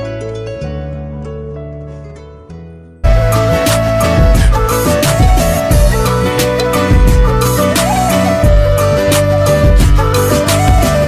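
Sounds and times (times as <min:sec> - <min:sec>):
background music with steady beat: 0:03.0 - 0:11.0.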